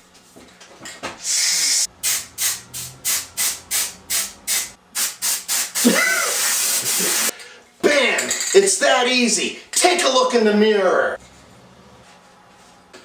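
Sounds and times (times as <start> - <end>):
aerosol spray can hissing: 1.2 - 7.3.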